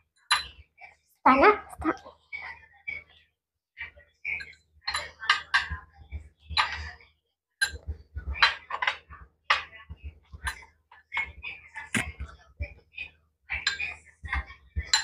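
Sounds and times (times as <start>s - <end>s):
cutlery clinking on plates: 0.2s - 0.6s, 4.3s - 5.8s, 6.5s - 6.9s, 7.6s - 9.8s, 13.5s - 15.0s.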